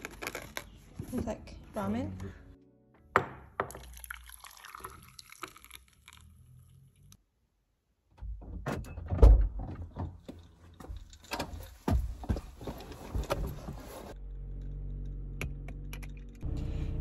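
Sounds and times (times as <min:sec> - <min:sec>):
clothing rustling: 0:10.5 - 0:14.2.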